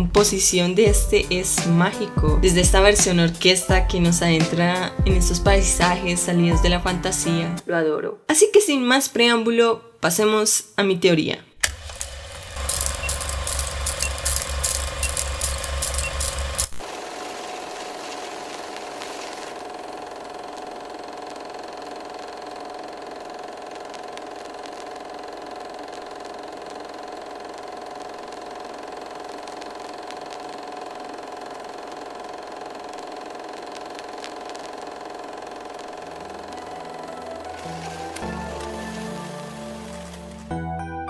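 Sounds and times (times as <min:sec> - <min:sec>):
film projector whirring: 0:11.6 - 0:40.5
low music notes: 0:36.2 - 0:41.0.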